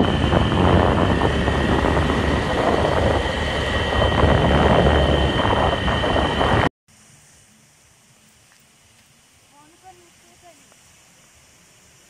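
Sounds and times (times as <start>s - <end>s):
wind rumble on microphone: 0.0s - 6.7s.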